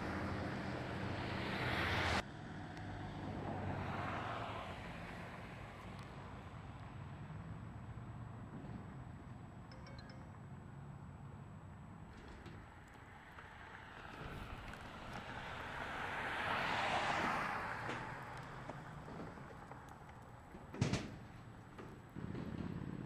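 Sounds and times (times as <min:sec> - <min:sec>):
vehicle passing by: 0:00.0 - 0:09.2, 0:13.0 - 0:20.5.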